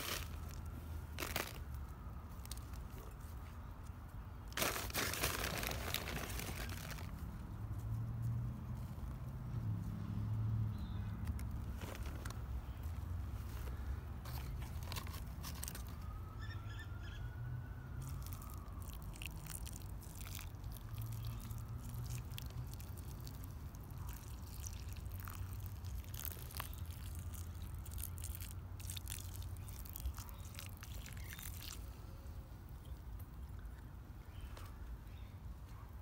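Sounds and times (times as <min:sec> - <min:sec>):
water poured onto soil: 0:18.0 - 0:32.0.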